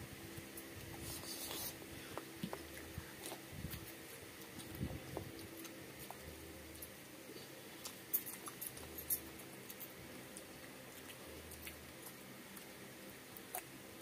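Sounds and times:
chewing: 0.6s - 14.0s.

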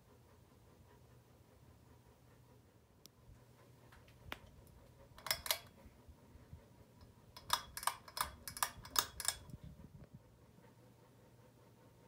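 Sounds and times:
pull-chain switch clicks: 5.2s - 5.7s, 7.4s - 9.5s.

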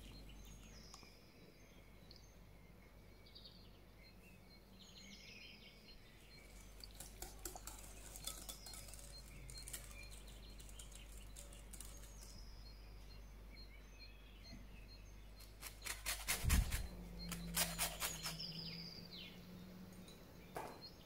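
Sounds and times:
whisk clinking against glass bowl: 6.8s - 10.2s.

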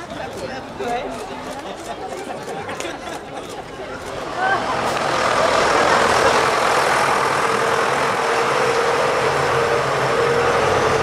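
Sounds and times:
tractor diesel engine running: 4.0s - 11.0s.

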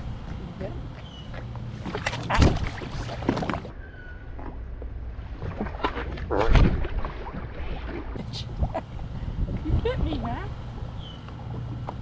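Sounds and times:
low steady hum: 0.0s - 12.0s
water splashing: 1.2s - 3.7s, 5.2s - 12.0s.

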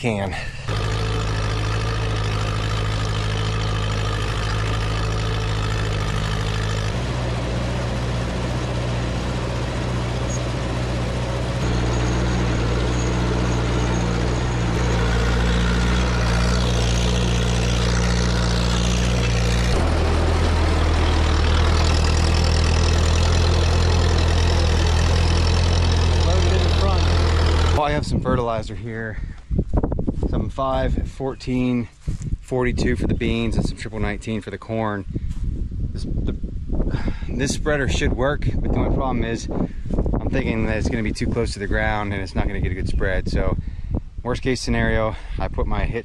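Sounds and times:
tractor engine under load: 0.0s - 28.6s.

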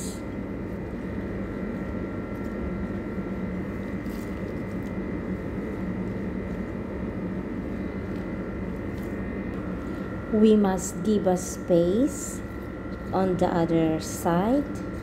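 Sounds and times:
machine drone with whine: 0.0s - 15.0s
salad leaves rustling: 1.8s - 6.7s, 7.9s - 10.0s.

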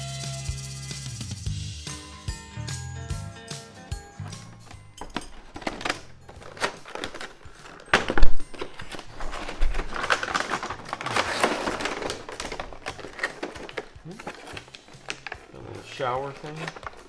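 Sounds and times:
packaging crinkling: 4.2s - 17.0s
toy box being handled: 4.2s - 17.0s.

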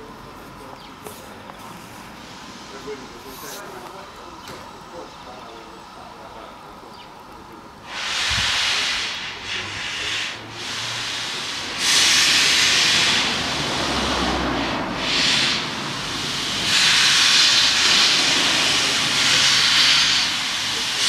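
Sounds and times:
low engine rumble: 0.0s - 21.0s
steam locomotive drain cocks hissing: 7.8s - 21.0s.

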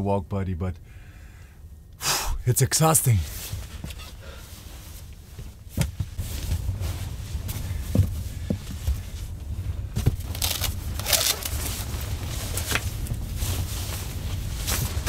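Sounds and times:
low rumble of storm wind: 0.0s - 15.0s
jacket rustling: 3.2s - 15.0s
zipper being zipped: 10.4s - 11.7s.

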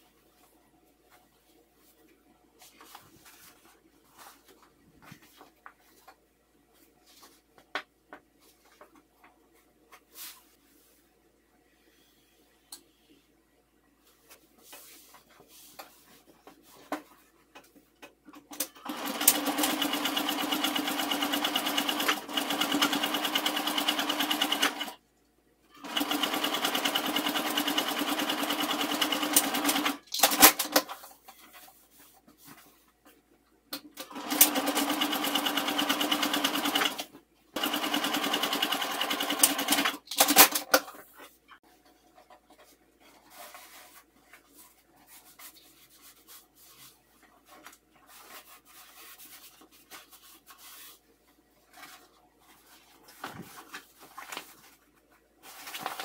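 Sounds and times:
fabric rustling: 0.2s - 11.1s, 41.0s - 56.0s
sewing machine stitching: 18.5s - 25.0s, 25.8s - 30.9s, 34.0s - 40.8s.

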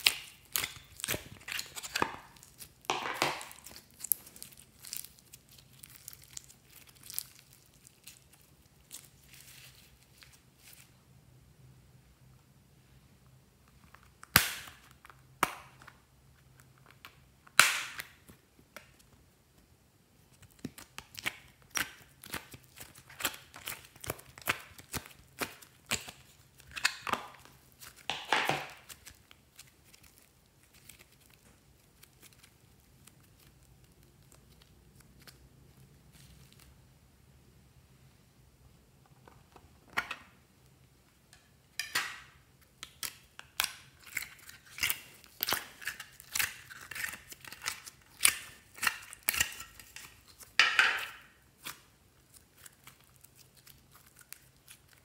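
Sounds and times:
slime popping and crackling: 0.0s - 10.4s, 14.0s - 15.9s, 16.9s - 19.1s, 20.3s - 36.7s, 42.6s - 55.0s.

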